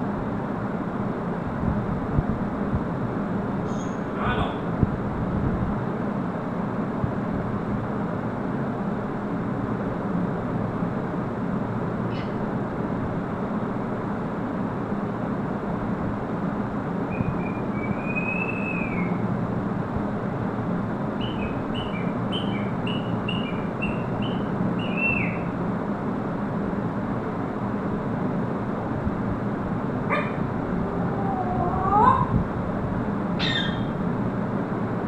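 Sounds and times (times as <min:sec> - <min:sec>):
steady background hum: 0:00.0 - 0:35.0
parrot whistling: 0:17.1 - 0:19.2, 0:21.2 - 0:25.4, 0:33.4 - 0:33.9.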